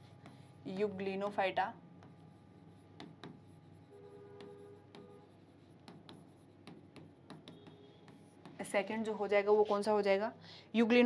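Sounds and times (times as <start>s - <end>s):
writing on a board: 0.0s - 0.9s, 2.0s - 9.8s.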